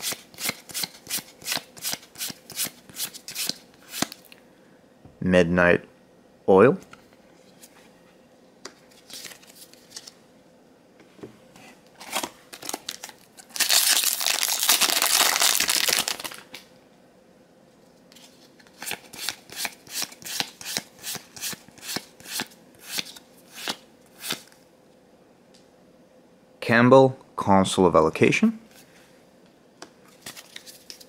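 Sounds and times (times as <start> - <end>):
foil wrapper tearing and crinkling: 12.0 - 16.5.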